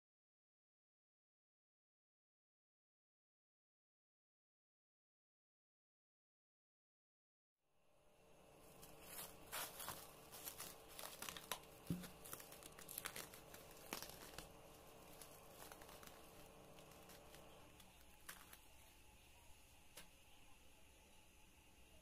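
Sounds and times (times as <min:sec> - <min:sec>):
cling film crackling as peeled: 0:08.5 - 0:19.0.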